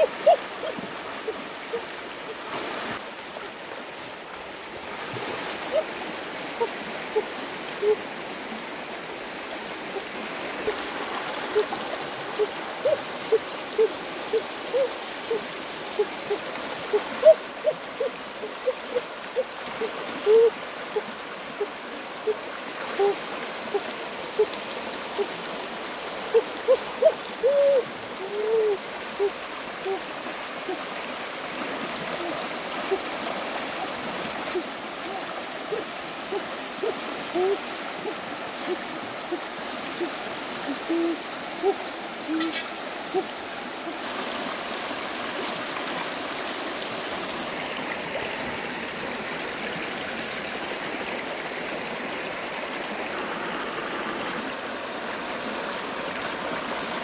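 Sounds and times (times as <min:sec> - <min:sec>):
river rushing over rocks: 0:00.0 - 0:57.0
water bloops: 0:34.4 - 0:44.0.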